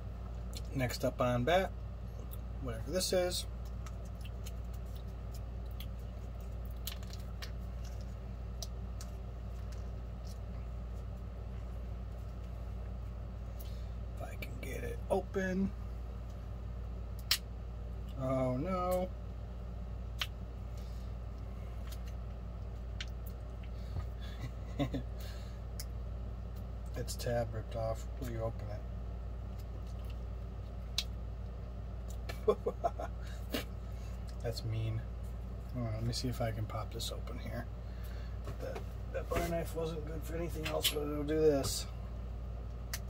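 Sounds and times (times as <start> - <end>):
low hum: 0.0 - 43.0.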